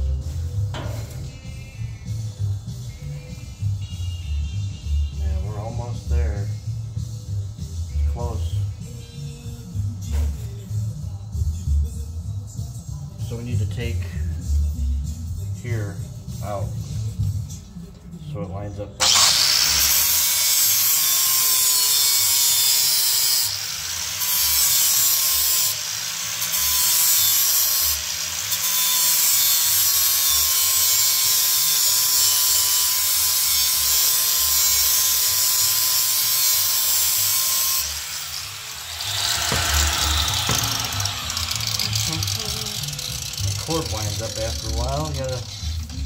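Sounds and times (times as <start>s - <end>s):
angle grinder grinding steel: 19.0s - 46.0s.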